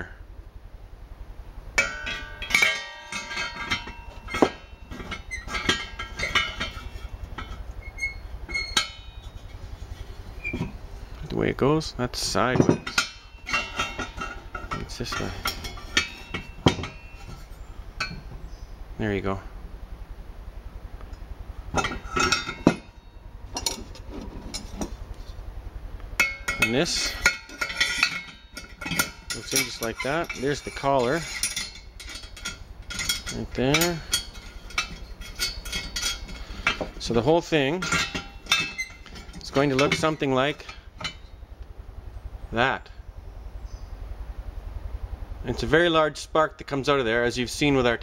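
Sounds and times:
steady low hum: 0:00.0 - 0:48.0
metal fittings clinking: 0:01.8 - 0:09.6, 0:12.3 - 0:18.4, 0:21.8 - 0:25.0, 0:26.2 - 0:41.3.

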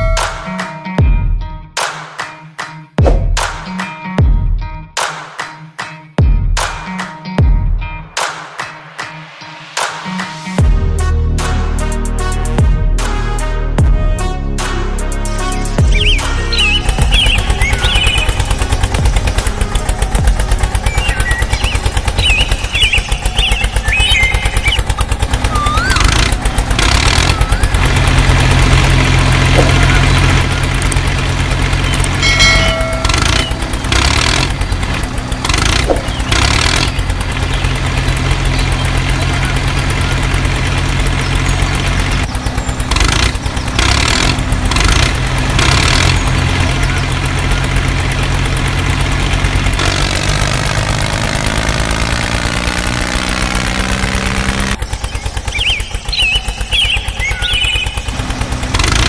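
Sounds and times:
tractor engine chugging: 0:15.3 - 0:59.0.

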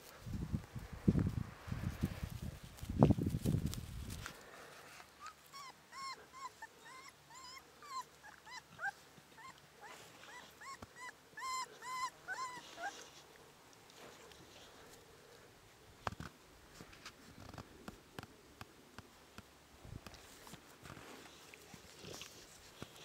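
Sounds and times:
handling rustle: 0:00.0 - 0:05.2, 0:20.0 - 0:23.0
puppy whimpering: 0:05.2 - 0:13.2.

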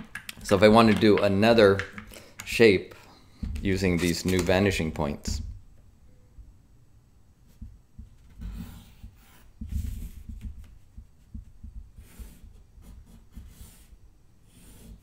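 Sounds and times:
ruler and hands bumping paper: 0:07.5 - 0:12.5
pen scratching along ruler: 0:12.0 - 0:15.0.

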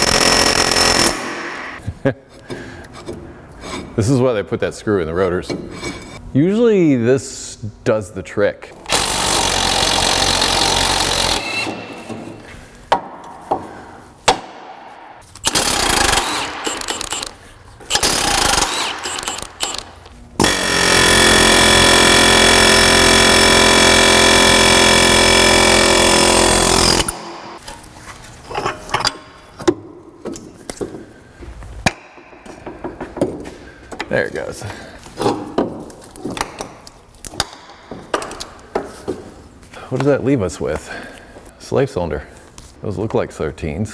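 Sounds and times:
pneumatic air hammer hammering: 0:00.0 - 0:01.8, 0:08.9 - 0:27.6.

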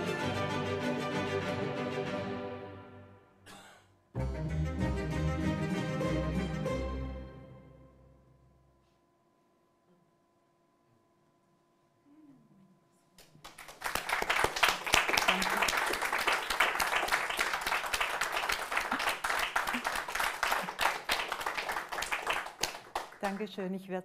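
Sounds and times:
applause: 0:13.2 - 0:23.6.

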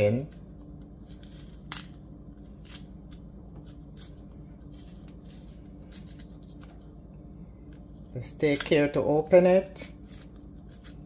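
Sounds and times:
steady low hum: 0:00.0 - 0:11.0
plantain peel snapping and rustling: 0:00.2 - 0:05.2.

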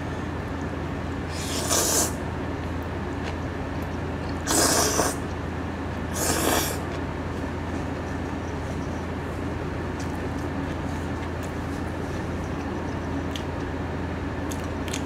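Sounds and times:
person slurping noodles: 0:01.3 - 0:02.2, 0:04.4 - 0:05.2, 0:06.1 - 0:06.8.

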